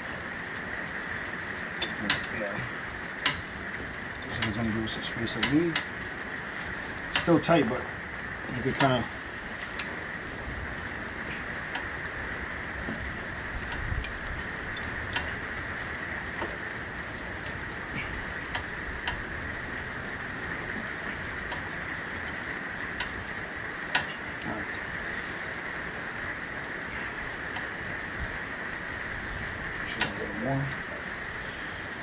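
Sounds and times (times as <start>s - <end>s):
steady hiss: 0.0s - 32.0s.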